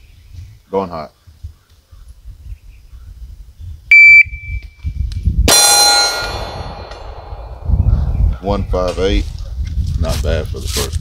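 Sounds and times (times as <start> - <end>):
steel target ringing: 5.5 - 8.3.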